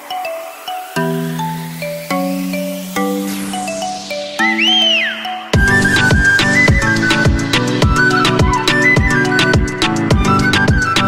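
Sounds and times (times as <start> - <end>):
high melody line: 0.0 - 11.0
deep kick drum: 5.6 - 10.9.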